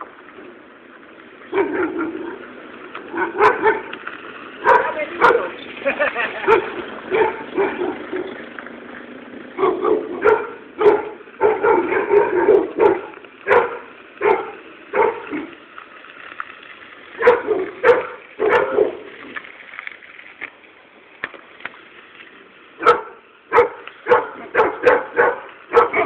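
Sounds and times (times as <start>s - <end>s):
dog barking: 1.5s - 2.4s, 3.1s - 3.9s, 4.6s - 5.5s, 6.4s - 8.3s, 9.6s - 15.5s, 17.2s - 19.0s, 22.8s - 26.0s.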